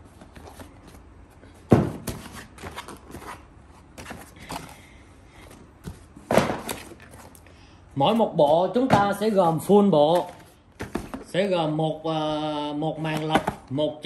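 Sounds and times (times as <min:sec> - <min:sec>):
cardboard scraping and rustling: 0:01.9 - 0:04.8.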